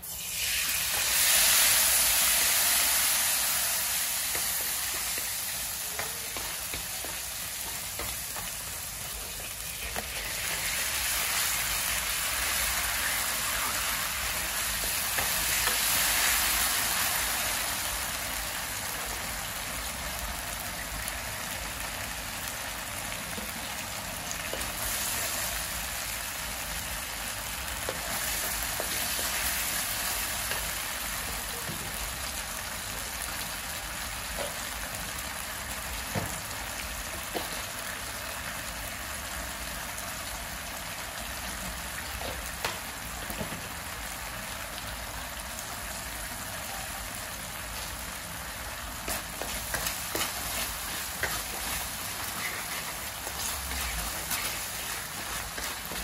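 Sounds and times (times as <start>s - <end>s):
garlic sizzling in hot oil: 0.0s - 56.0s
wooden spatula scraping wok: 49.0s - 56.0s.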